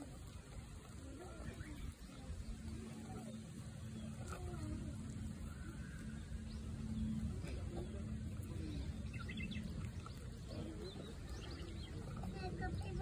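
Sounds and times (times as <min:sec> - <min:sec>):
steady low rumble: 0:00.0 - 0:13.0
bird chirps: 0:08.6 - 0:13.0.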